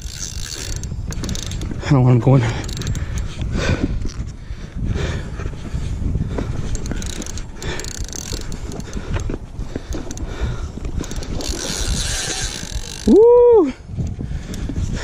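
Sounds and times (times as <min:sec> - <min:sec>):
fishing reel gears ticking: 0:00.0 - 0:03.4, 0:06.7 - 0:13.4
person shouting: 0:13.1 - 0:13.8.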